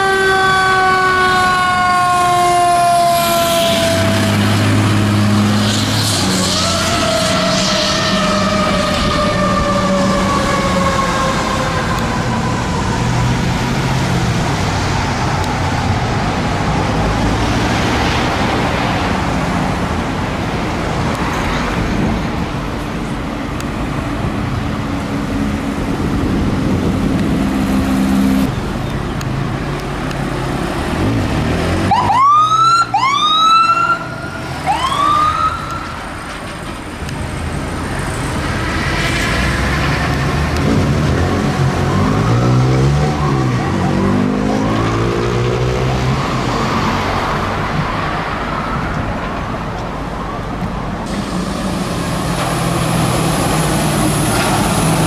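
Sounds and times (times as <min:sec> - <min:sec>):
siren wailing: 0:00.0 - 0:05.3, 0:06.3 - 0:13.6, 0:31.9 - 0:36.2, 0:41.7 - 0:45.0
diesel engine rumble: 0:18.2 - 0:32.4, 0:34.2 - 0:55.0
electronic siren whoops: 0:31.9 - 0:36.0.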